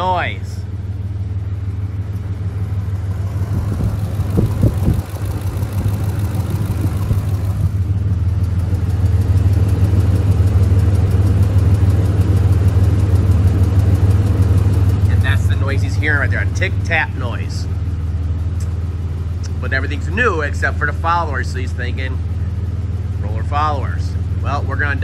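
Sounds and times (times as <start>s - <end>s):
engine idling: 0.0s - 25.0s
fast rhythmic ticking: 3.4s - 7.8s.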